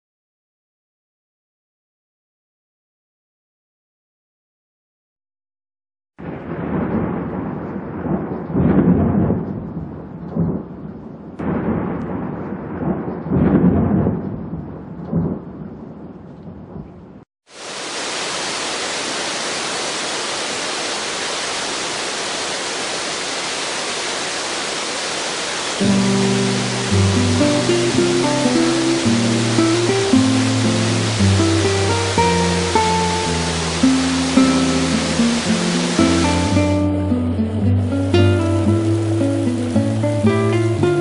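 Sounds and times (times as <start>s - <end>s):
thunder rumbling: 6.2s - 17.2s, 21.0s - 41.0s
rush of falling water: 17.5s - 41.0s.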